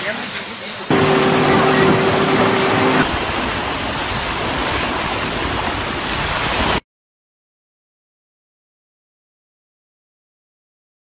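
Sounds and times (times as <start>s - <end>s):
steady hum: 0.9s - 3.2s
surf on a beach: 0.9s - 6.8s.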